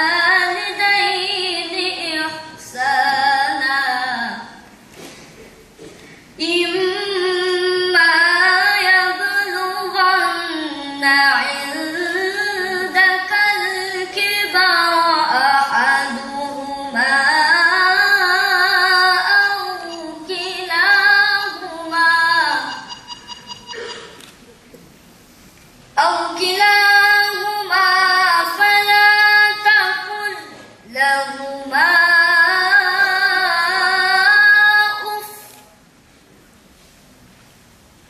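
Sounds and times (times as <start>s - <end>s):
boy singing unaccompanied: 6.4s - 22.8s, 26.0s - 35.5s.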